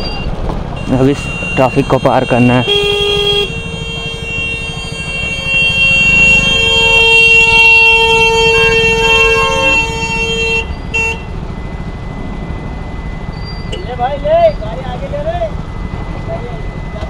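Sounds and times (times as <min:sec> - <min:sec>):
low road rumble: 0:00.0 - 0:17.0
vehicle horns honking: 0:00.8 - 0:11.5.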